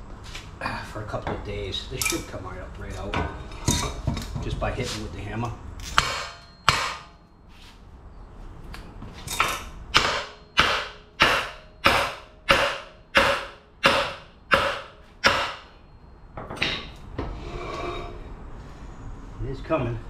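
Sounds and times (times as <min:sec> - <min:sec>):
hammer striking metal: 0:05.9 - 0:07.2, 0:09.4 - 0:15.8.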